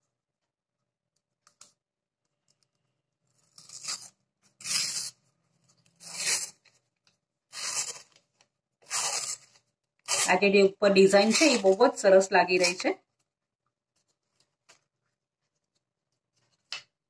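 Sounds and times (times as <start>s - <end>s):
paper liner tearing: 3.4s - 5.3s, 5.9s - 6.8s, 7.5s - 8.2s, 8.8s - 10.5s, 11.2s - 11.9s.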